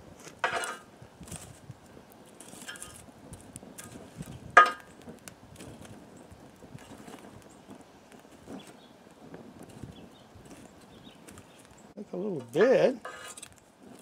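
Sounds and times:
wood fire crackling: 0.0s - 14.0s
metal tongs scraping wood: 0.2s - 1.6s, 2.3s - 5.0s, 12.4s - 14.0s.

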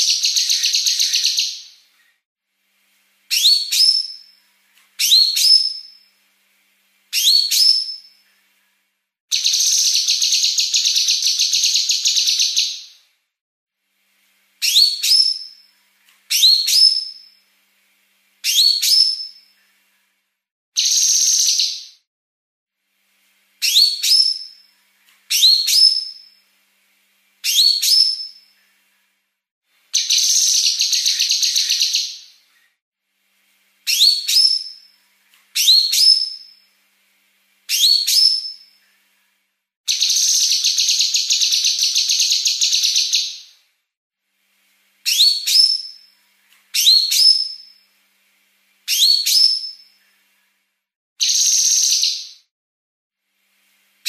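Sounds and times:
bird whistled song: 0.0s - 1.8s, 3.3s - 4.4s, 5.0s - 6.1s, 7.1s - 8.2s, 9.3s - 13.0s, 14.6s - 15.7s, 16.3s - 17.4s, 18.4s - 19.6s, 20.8s - 22.0s, 23.6s - 24.7s, 25.3s - 26.4s, 27.4s - 28.5s, 30.0s - 32.4s, 33.9s - 34.9s, 35.6s - 36.7s, 37.7s - 38.8s, 39.9s - 43.6s, 45.1s - 46.1s, 46.7s - 47.8s, 48.9s - 50.0s, 51.2s - 52.5s.

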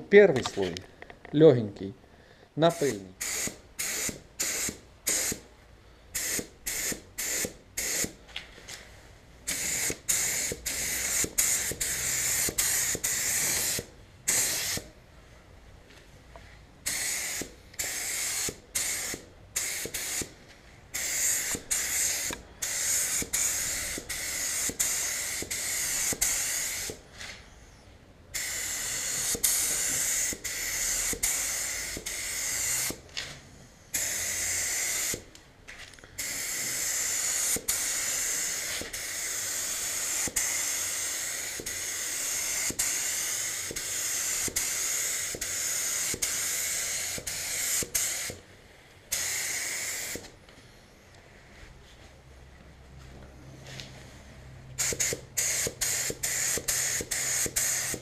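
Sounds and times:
paint spray gun hissing: 2.7s - 5.5s, 6.1s - 8.2s, 9.5s - 14.9s, 16.8s - 27.0s, 28.3s - 33.0s, 33.9s - 35.3s, 36.2s - 48.4s, 49.1s - 50.4s, 54.8s - 58.0s.

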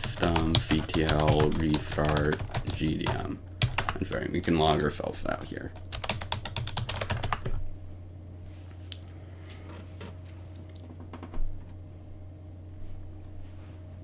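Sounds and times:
typing on computer keyboard: 0.0s - 4.0s, 5.8s - 7.6s
steady low hum: 0.0s - 14.0s.

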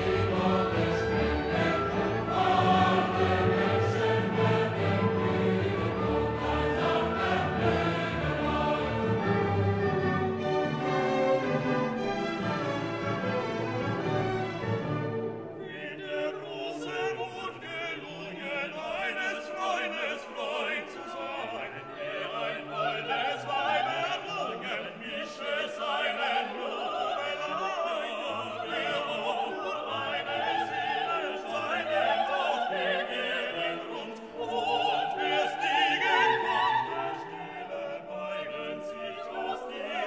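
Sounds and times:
orchestral accompaniment: 0.0s - 17.9s
operatic voice singing: 15.6s - 40.0s.

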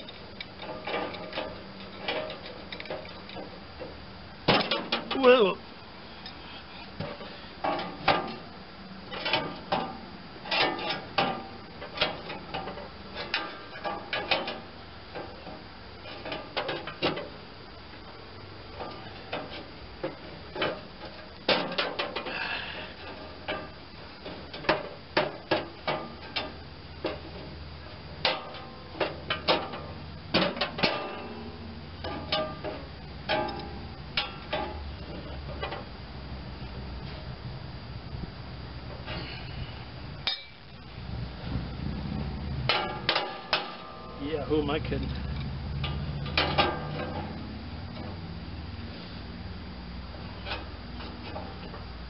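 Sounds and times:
wrench clanking on metal: 45.0s - 47.4s.

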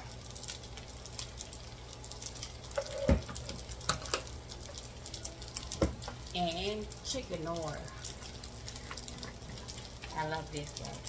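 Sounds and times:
rice sizzling in a skillet: 0.0s - 11.0s.

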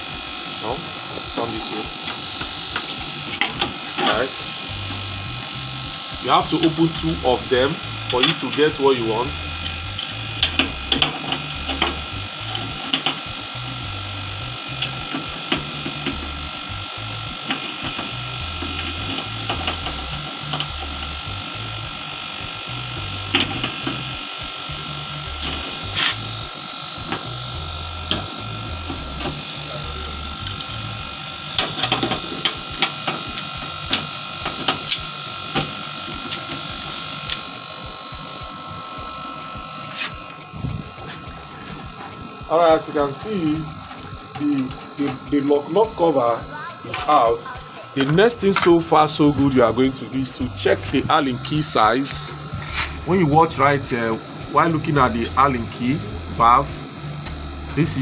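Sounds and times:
machine hum with high whine: 0.0s - 58.0s
spanner metallic clicks and taps: 9.6s - 37.6s.

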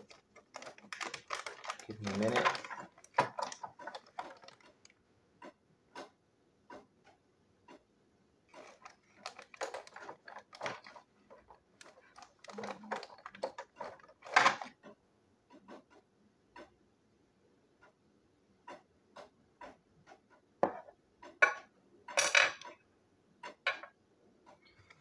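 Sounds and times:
objects clicking and tapping on table: 18.7s - 22.8s, 23.4s - 24.0s.

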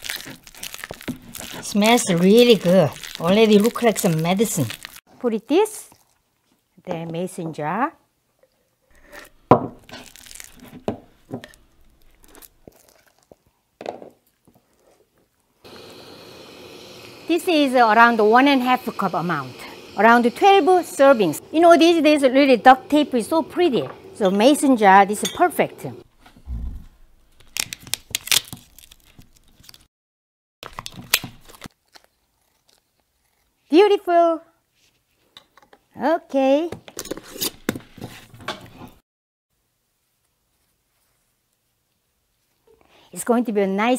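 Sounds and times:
duct tape ripping off roll: 0.0s - 1.7s, 27.4s - 29.8s.

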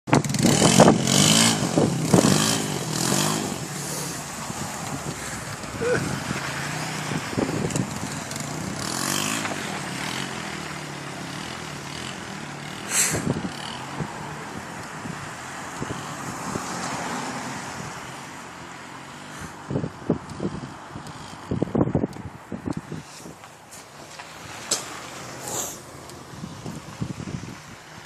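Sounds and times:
atv engine revving: 0.1s - 15.2s.

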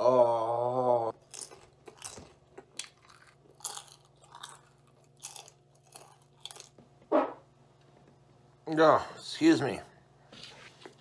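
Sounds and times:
chewing crisp potato chips: 1.1s - 7.0s.

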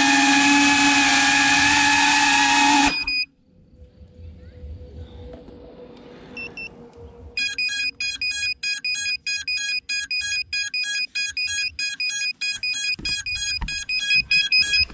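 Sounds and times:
high-pitched beacon beeping: 7.4s - 14.9s.

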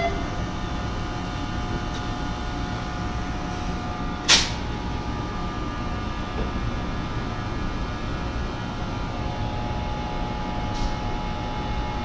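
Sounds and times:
train engine hum and rumble: 0.0s - 12.0s.

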